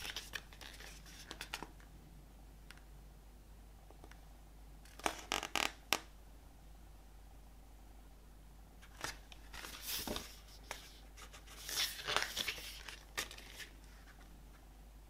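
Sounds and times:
paper and plastic rustling: 0:08.8 - 0:14.3.

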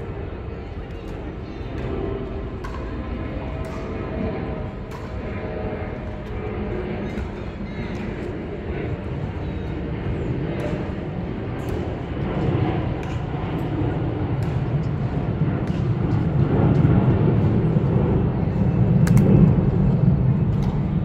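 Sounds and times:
low outdoor rumble: 0:08.4 - 0:21.0.

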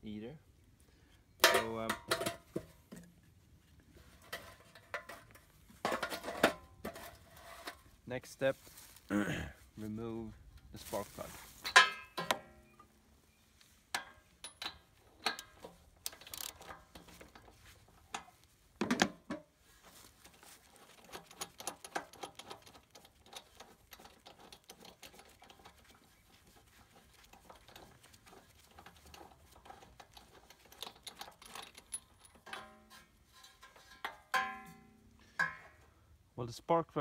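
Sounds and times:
metal tool clicks and knocks: 0:01.4 - 0:03.1, 0:11.6 - 0:12.9, 0:13.9 - 0:19.5, 0:21.0 - 0:26.0, 0:26.9 - 0:35.8
metal clatter: 0:01.4 - 0:03.2, 0:04.1 - 0:07.9, 0:10.5 - 0:12.7, 0:13.9 - 0:35.9
ratchet wrench clicking: 0:15.2 - 0:17.3.

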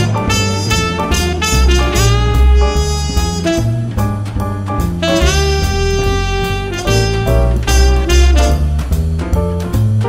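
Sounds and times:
jazz horns melody: 0:00.0 - 0:09.6
bass line: 0:00.0 - 0:10.0.

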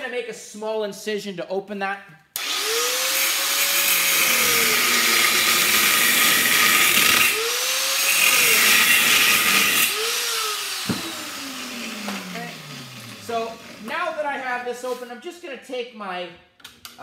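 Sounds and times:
electric grinder cutting steel: 0:02.4 - 0:13.9.

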